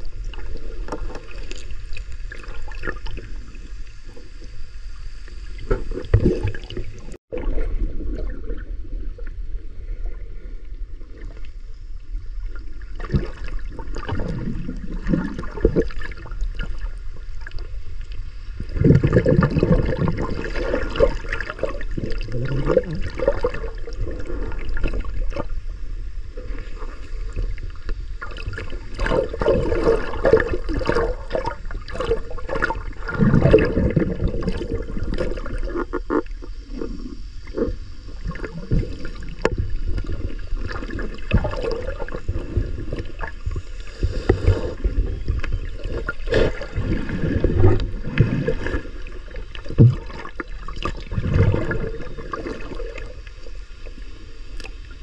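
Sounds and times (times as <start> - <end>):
muffled underwater rumble: 0.0 - 55.0
water sloshing: 12.4 - 25.7, 26.4 - 53.6.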